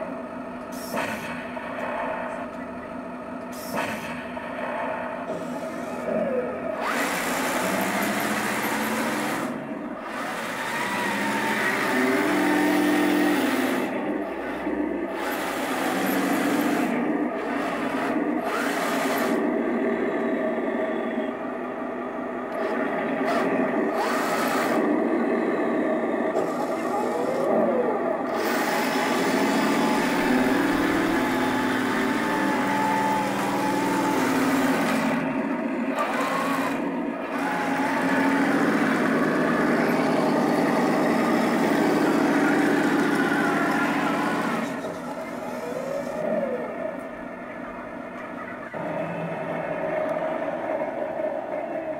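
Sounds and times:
electric motors whining: 0:00.0 - 0:51.9
simulated tank engine sound: 0:00.0 - 0:51.9.

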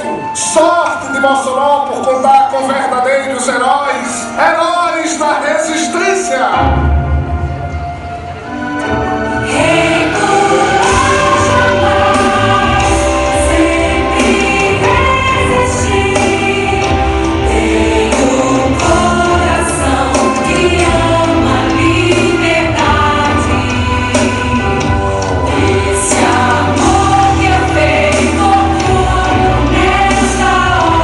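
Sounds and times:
choir singing: 0:05.3 - 0:31.0
percussion strikes: 0:08.6 - 0:31.0
steady bass: 0:09.5 - 0:31.0.

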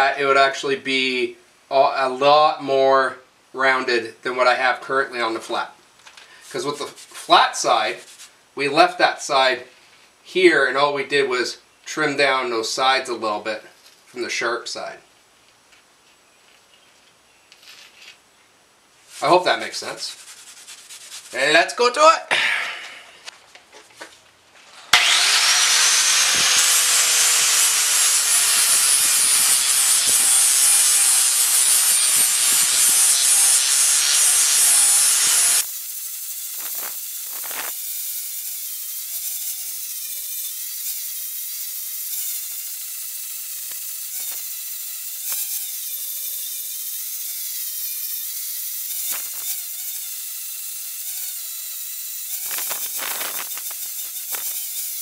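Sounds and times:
angle grinder grinding steel: 0:24.7 - 0:55.0.

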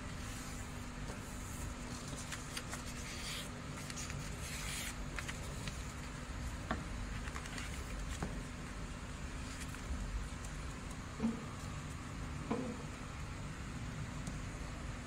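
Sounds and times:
steady background hiss: 0:00.0 - 0:15.0
paper rustling and crinkling: 0:01.4 - 0:06.3, 0:07.0 - 0:08.5, 0:09.4 - 0:10.8.

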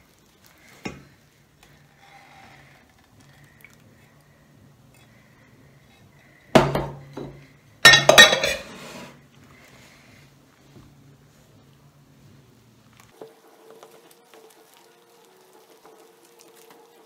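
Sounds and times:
mixing bowls clinking and clattering: 0:00.1 - 0:04.2, 0:05.8 - 0:09.2.

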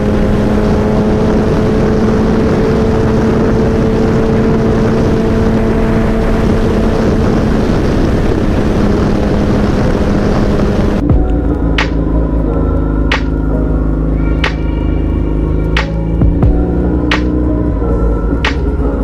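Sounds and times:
motorcycle engine cruising: 0:00.0 - 0:19.0
wind rushing over microphone: 0:00.0 - 0:19.0.

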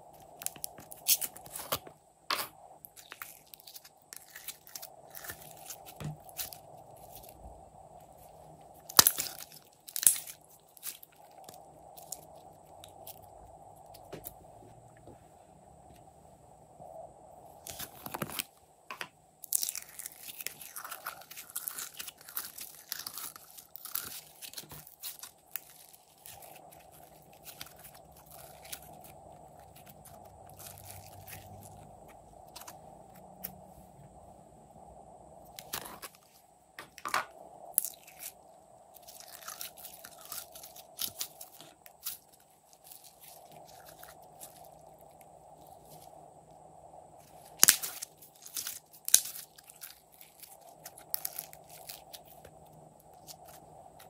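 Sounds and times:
slime crackling and popping: 0:08.8 - 0:13.2, 0:19.4 - 0:31.8, 0:39.0 - 0:44.8, 0:47.5 - 0:52.5.

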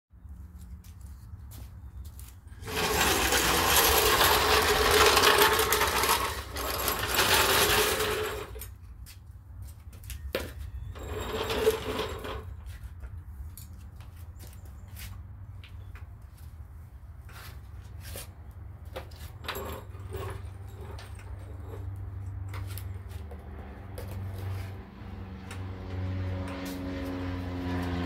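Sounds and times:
floor jack scraping on concrete: 0:02.5 - 0:08.8, 0:10.8 - 0:12.8, 0:19.0 - 0:28.0.

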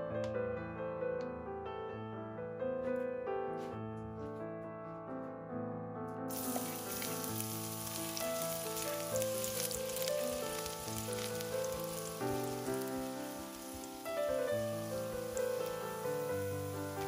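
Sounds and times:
garlic sizzling in hot oil: 0:06.3 - 0:17.0.

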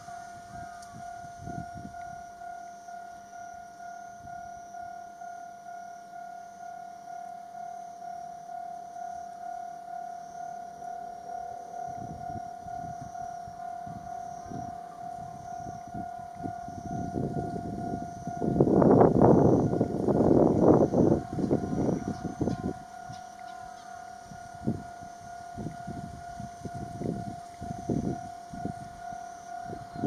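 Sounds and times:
level-crossing warning bell: 0:00.0 - 0:30.0
diesel railcar rumble: 0:11.2 - 0:30.0.

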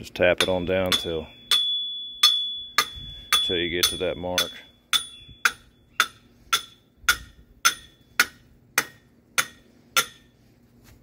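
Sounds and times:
hammer striking metal post: 0:00.4 - 0:10.3.

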